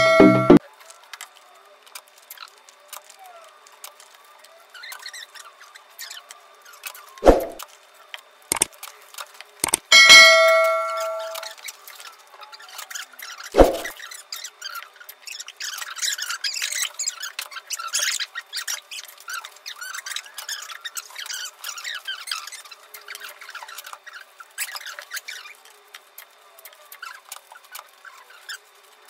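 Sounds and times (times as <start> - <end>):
bright electronic chime: 0.0 - 0.6, 10.0 - 11.4
sharp knocks: 7.2 - 7.6, 13.6 - 13.9.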